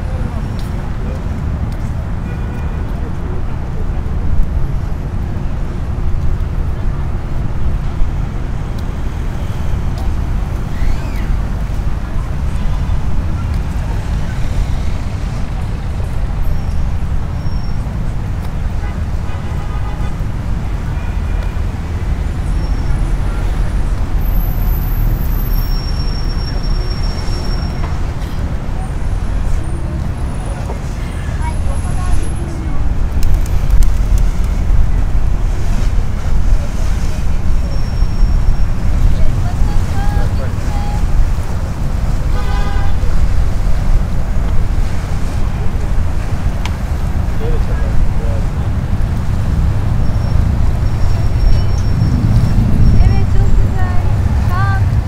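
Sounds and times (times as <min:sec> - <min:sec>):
road traffic rumble: 0:00.0 - 0:55.0
wind buffeting microphone: 0:31.4 - 0:55.0.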